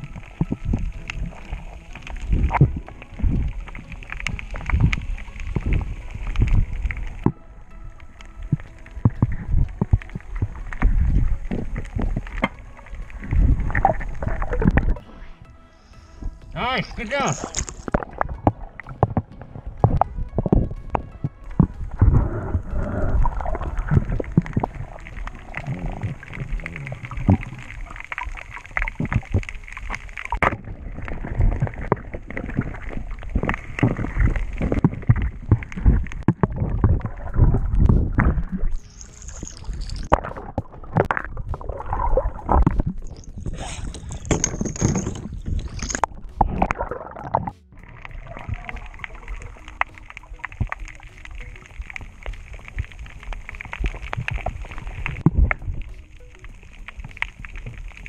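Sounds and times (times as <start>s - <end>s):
muffled underwater gurgling: 0.0s - 58.0s
hissy splashing: 21.6s - 58.0s.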